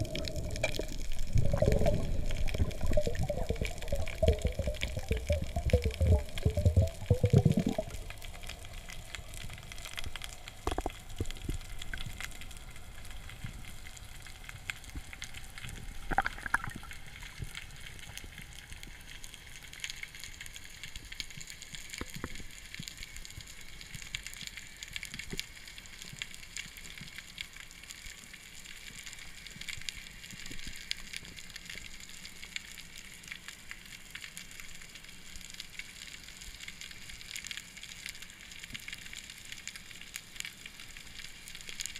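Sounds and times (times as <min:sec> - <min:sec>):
snapping shrimp clicks underwater: 0:00.0 - 0:12.6, 0:14.9 - 0:17.6.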